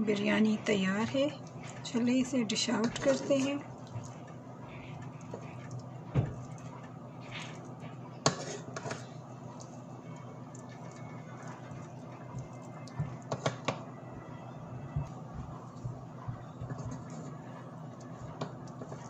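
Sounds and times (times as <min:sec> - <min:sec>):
faint steady hum: 0:00.0 - 0:19.0.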